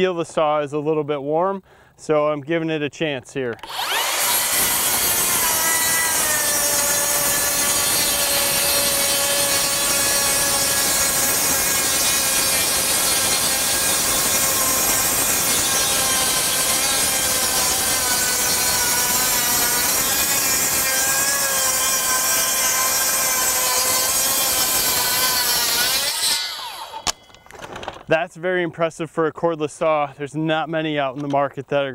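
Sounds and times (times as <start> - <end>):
circular saw motor whine: 3.6 - 21.2, 21.9 - 27.3.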